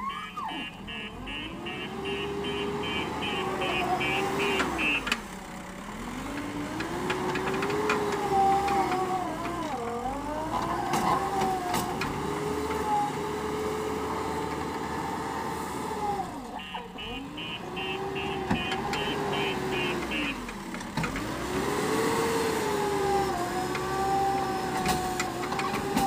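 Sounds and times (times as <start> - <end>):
reversing alarm beeping: 0.0 - 5.1, 16.6 - 20.4
diesel engine running hard: 0.1 - 26.0.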